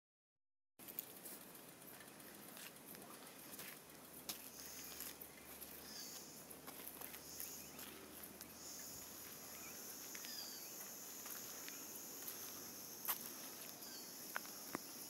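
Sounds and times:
insects shrilling: 4.4 - 15.0.

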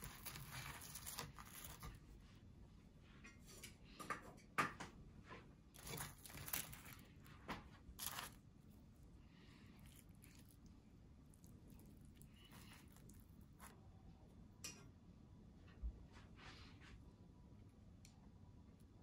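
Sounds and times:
food scraping on wooden plate: 0.0 - 2.0, 5.8 - 7.2, 8.0 - 8.4.

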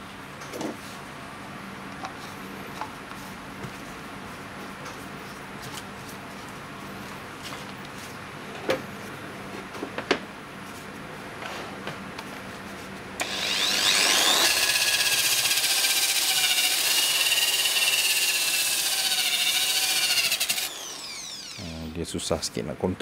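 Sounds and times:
electric polisher motor whining: 13.2 - 21.7.

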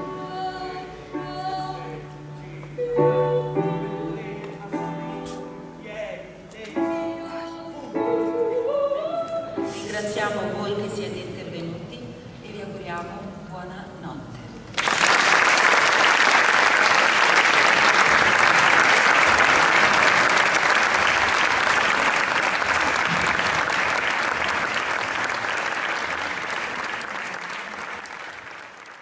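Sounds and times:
audience applauding: 14.8 - 29.0.

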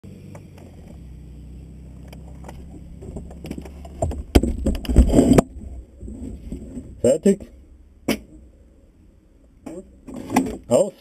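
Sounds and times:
steady low hum: 0.0 - 10.7
rattling clatter: 2.0 - 7.0.

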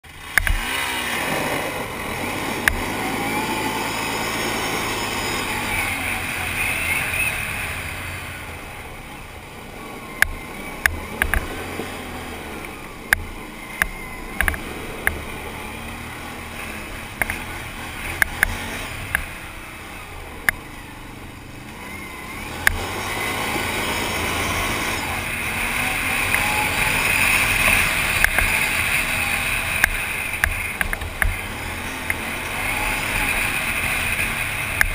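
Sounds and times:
quad engine revving: 0.0 - 34.9
sharp knocks and clicks: 0.3 - 0.6, 10.2 - 11.6, 13.1 - 15.2, 29.8 - 31.4.

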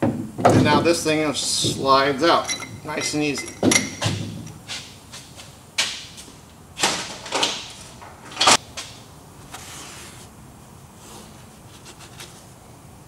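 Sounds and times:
metal clunks and scrapes: 2.5 - 5.0.

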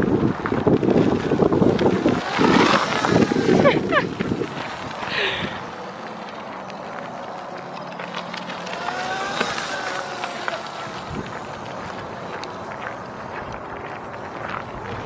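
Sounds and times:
steady background noise: 0.0 - 15.0
electric motor whine: 1.4 - 4.8, 8.0 - 13.2.

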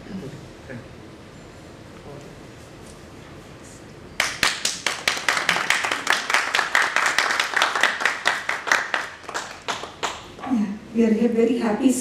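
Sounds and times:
audience applauding: 4.2 - 10.3.

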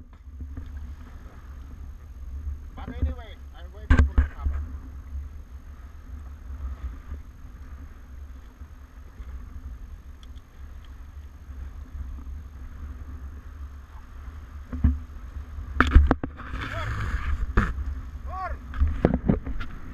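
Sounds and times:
wind buffeting microphone: 0.0 - 19.9
water hissing past hulls: 12.6 - 19.9.

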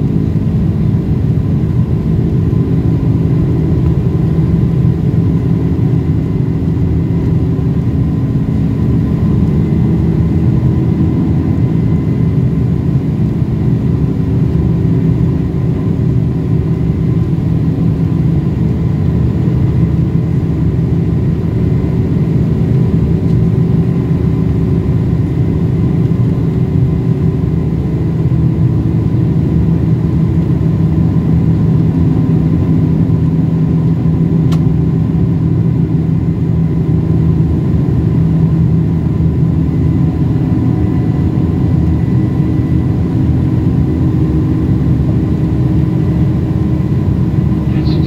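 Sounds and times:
airplane cabin engine and airflow rush: 0.0 - 48.0
faint steady whine: 45.1 - 48.0.

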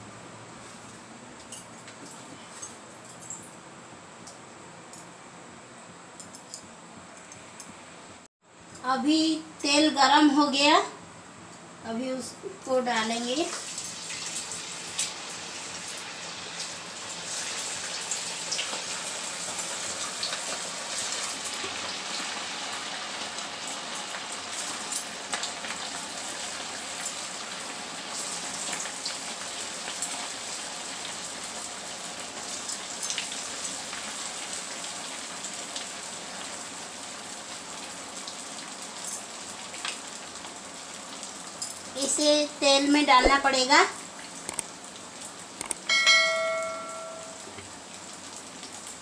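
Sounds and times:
cakes sizzling in hot oil: 12.8 - 45.6.

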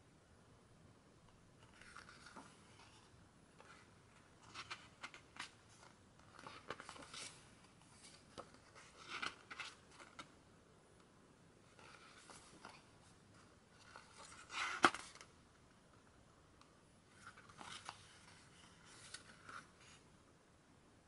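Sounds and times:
book pages turning: 1.6 - 10.4, 11.7 - 15.3, 17.1 - 20.0.

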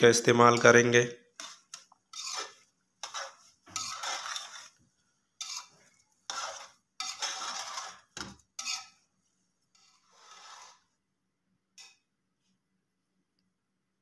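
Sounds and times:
metal spoon scraping a pot: 0.4 - 11.0.

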